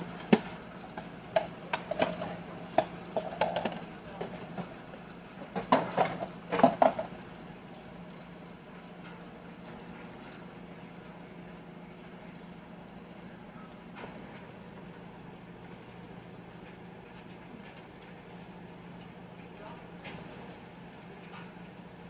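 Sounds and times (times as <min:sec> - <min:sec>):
tap running: 0:00.0 - 0:07.2
dishes clattering in sink: 0:05.4 - 0:07.1.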